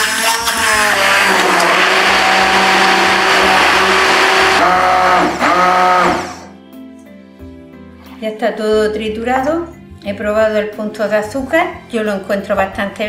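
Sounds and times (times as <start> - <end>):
immersion blender whining: 0.0 - 6.5.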